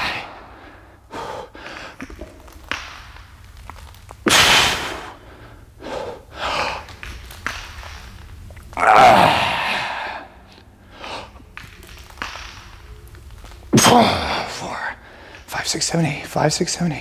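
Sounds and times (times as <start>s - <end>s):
person breathing hard: 0.0s - 2.2s, 4.8s - 7.0s.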